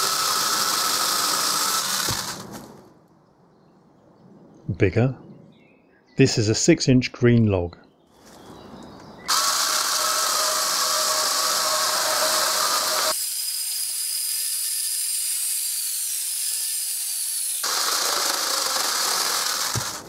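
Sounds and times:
electric chainsaw cutting log: 0.0 - 2.8, 9.3 - 20.0.

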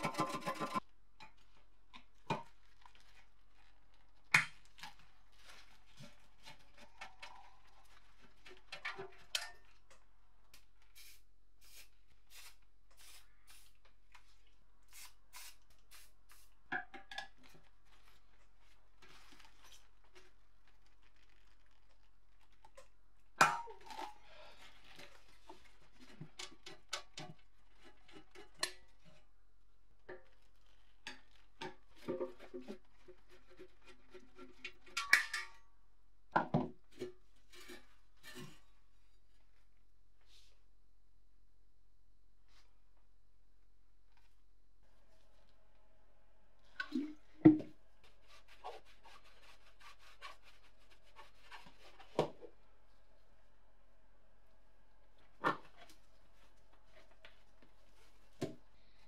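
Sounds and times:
scraper scraping paint: 48.0 - 52.2.

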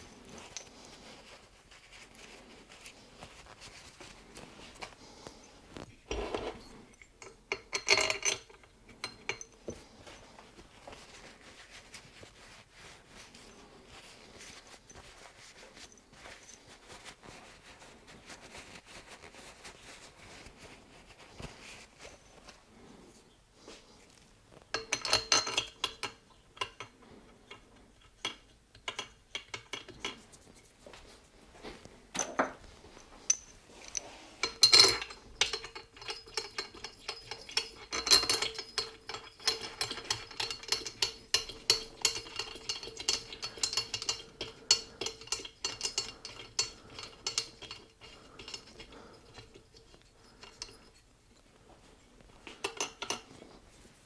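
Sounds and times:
metallic clinks of tools: 33.3 - 51.0.

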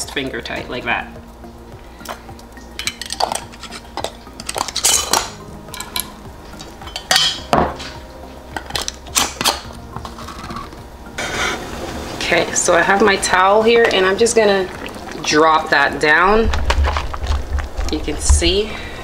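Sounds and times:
metal clinking on glass jars: 2.8 - 6.1.

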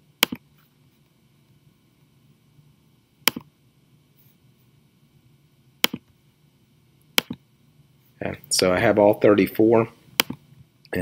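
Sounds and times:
mouse button clicks: 3.2 - 3.5, 5.8 - 6.0, 7.2 - 7.4, 10.2 - 10.4.

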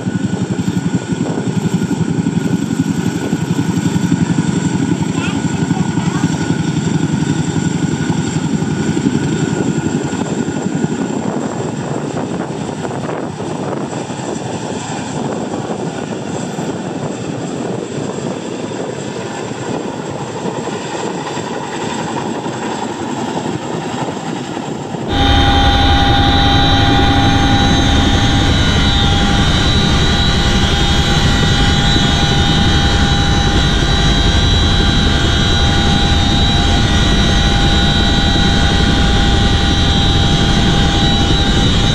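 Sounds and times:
helicopter hovering: 0.0 - 41.9
high-pitched whines: 25.0 - 41.9.

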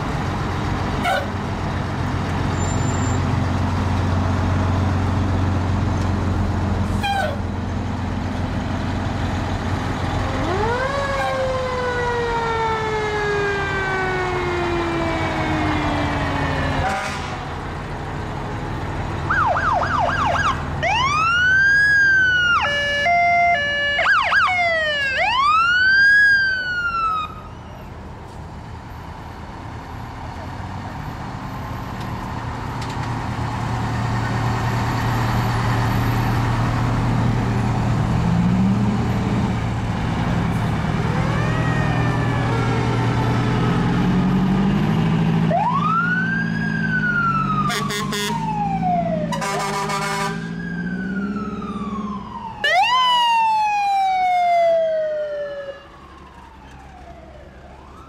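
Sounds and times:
truck engines running: 0.0 - 58.0
fire truck siren wailing: 9.8 - 28.0, 33.8 - 58.0.

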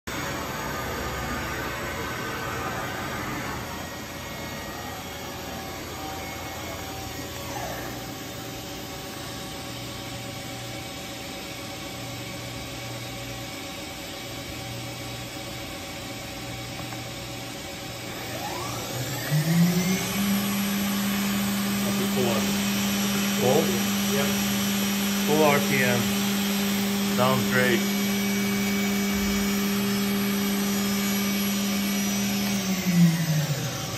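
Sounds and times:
machine humming: 0.1 - 33.9
spindle whine spinning up: 14.3 - 33.9.

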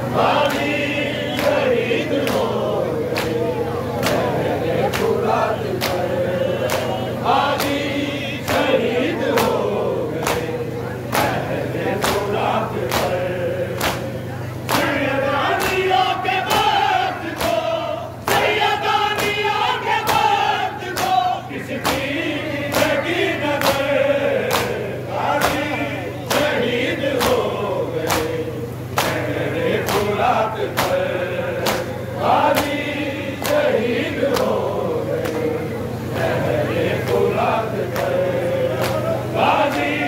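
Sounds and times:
men chanting a lament: 0.0 - 40.0.

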